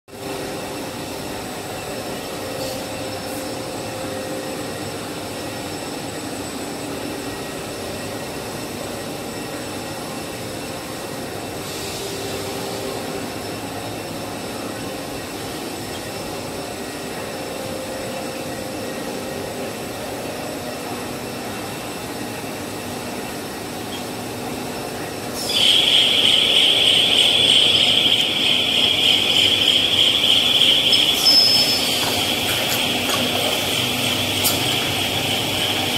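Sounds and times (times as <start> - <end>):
steady machine hum: 0.1 - 35.9
loud high-pitched hiss: 25.4 - 32.7.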